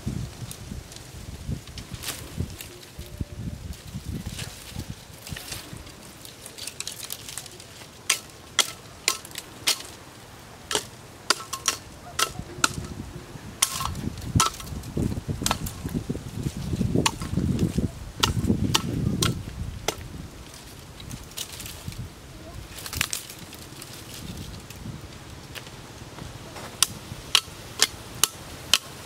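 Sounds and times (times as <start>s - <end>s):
dry brush rustling: 0.0s - 29.0s
machete chopping branches: 4.0s - 10.0s, 10.7s - 13.0s, 13.6s - 16.0s, 16.7s - 22.0s, 26.6s - 29.0s.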